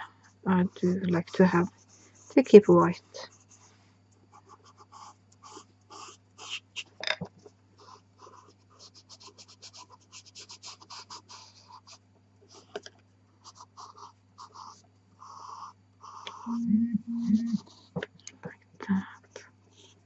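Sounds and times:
pencil scratching on paper: 0.6 - 3.7, 4.3 - 7.0, 7.8 - 12.8, 13.4 - 18.0.

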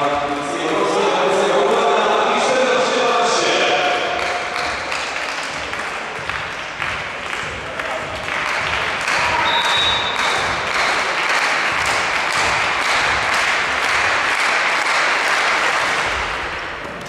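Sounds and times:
crowd noise: 0.0 - 17.0
referee's whistle: 9.3 - 10.4.

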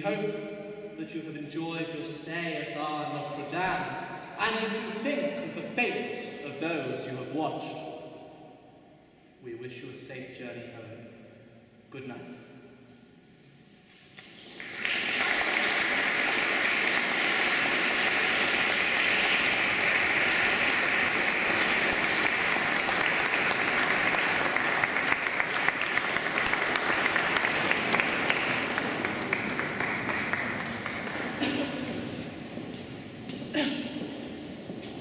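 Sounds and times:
audience applauding: 14.2 - 33.4.

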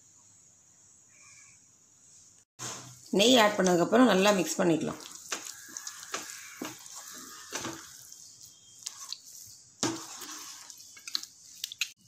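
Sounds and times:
light sizzle of ghee: 1.1 - 12.0
spatula scraping a pan: 5.1 - 11.0.

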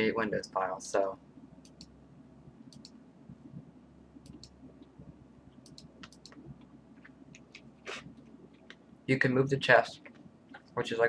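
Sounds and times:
low steady hum: 0.0 - 11.0
computer mouse clicks: 1.6 - 1.9, 2.7 - 3.0, 4.2 - 4.9, 5.6 - 8.8.

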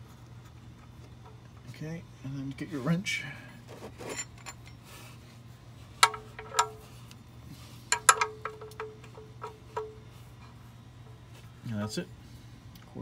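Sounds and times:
metal wrench clinking on drain plug: 7.9 - 9.9.

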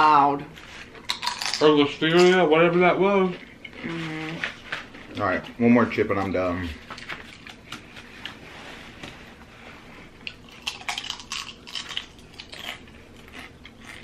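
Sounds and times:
tortilla chips crunching: 0.9 - 1.7, 10.2 - 14.0.

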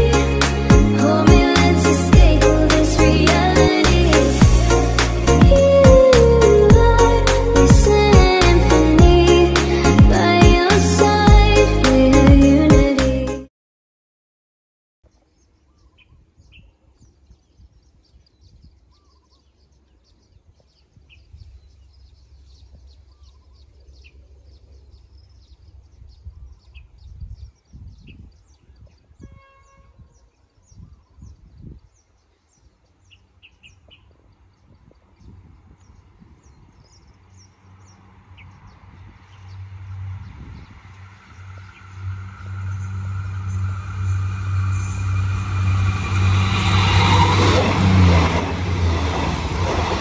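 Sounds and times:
approaching train hum: 0.0 - 12.6, 32.9 - 50.0
low rumble: 2.1 - 8.4, 38.8 - 50.0
birds chirping: 15.1 - 50.0.

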